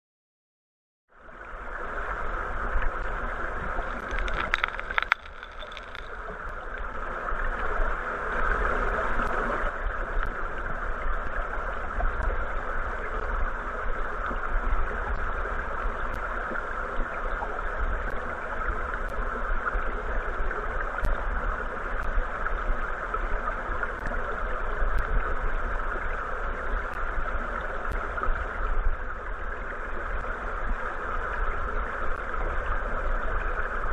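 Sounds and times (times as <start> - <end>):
underwater river current rushing: 1.2 - 33.9
faint ticks and clicks: 2.7 - 6.9, 10.2 - 10.4, 17.4 - 18.3, 21.0 - 21.3, 23.9 - 24.2, 24.9 - 25.2, 26.8 - 29.4.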